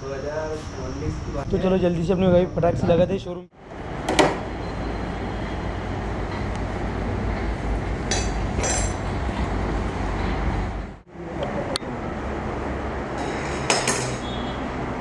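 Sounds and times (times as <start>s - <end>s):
workshop background rumble: 0.0s - 15.0s
metallic clinks of metal parts: 8.1s - 9.0s.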